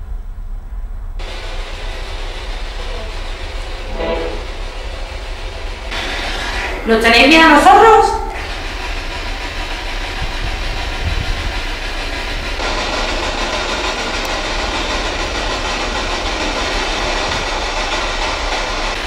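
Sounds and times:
low hum: 0.0s - 19.0s
radio static hissing: 1.2s - 7.4s.

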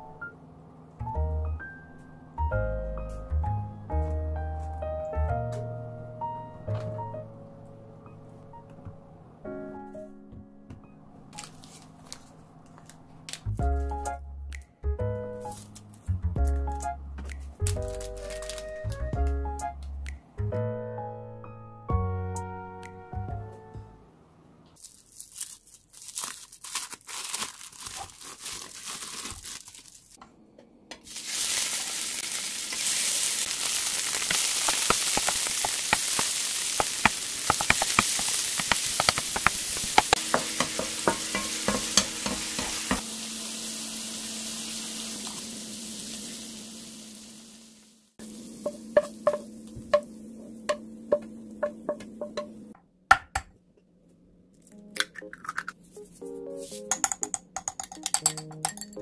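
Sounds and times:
plastic wrap crinkling: 11.4s - 13.5s, 17.6s - 19.0s, 24.8s - 30.2s, 31.1s - 40.3s
meat sizzling in hot oil: 31.1s - 50.1s.

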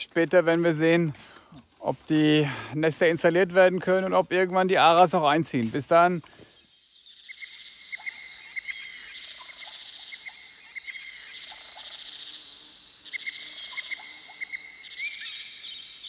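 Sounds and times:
high insect buzz: 10.4s - 15.6s.

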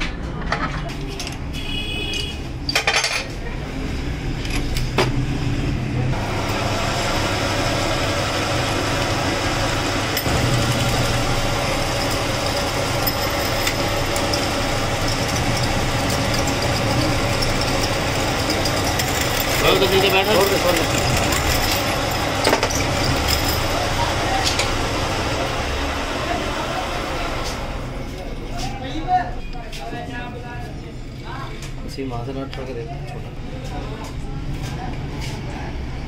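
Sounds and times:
metal lathe humming and whining: 6.2s - 28.2s.

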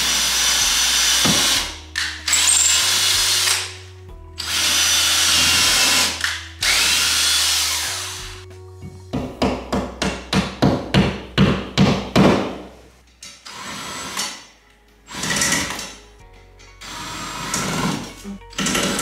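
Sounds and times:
cordless drill running: 0.0s - 1.7s, 2.3s - 3.8s, 4.4s - 8.4s.

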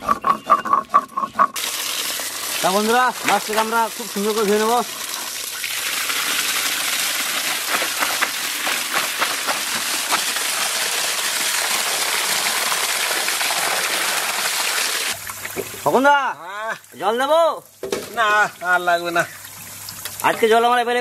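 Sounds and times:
water pouring into metal bowl: 1.6s - 15.6s
fish pieces sloshing and clattering: 7.0s - 10.6s.

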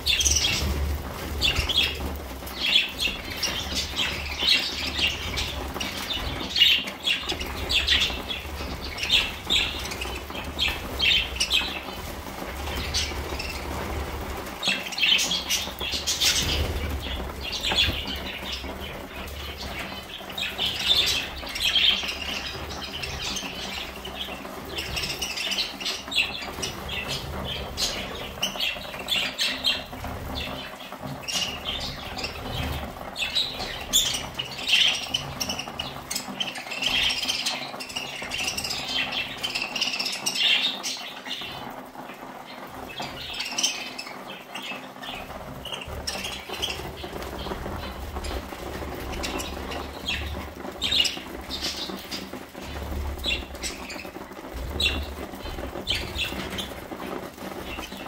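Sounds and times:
birds pecking and rustling: 0.0s - 58.0s
budgerigars chirping: 0.1s - 41.8s, 42.5s - 58.0s.

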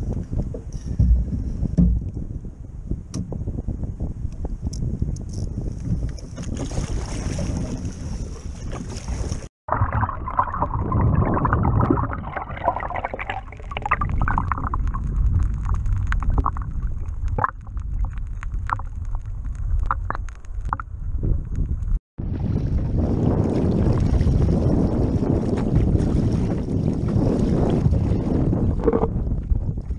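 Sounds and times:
wind: 0.0s - 29.9s
kayak paddling water: 5.6s - 20.2s, 22.3s - 29.8s
underwater rushing and gurgling: 7.5s - 20.9s, 22.4s - 29.3s
sharp underwater clicks: 13.1s - 21.8s.

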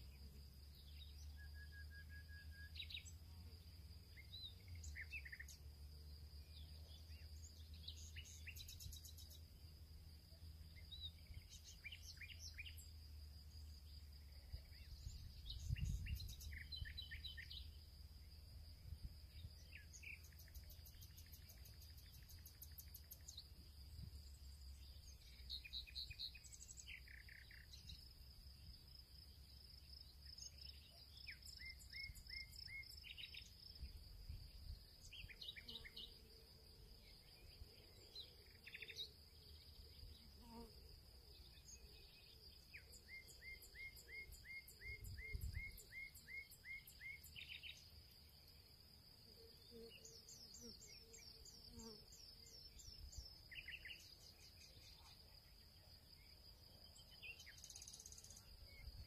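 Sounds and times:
faint birdsong: 0.0s - 59.0s
high-pitched insect trill: 7.4s - 59.0s.

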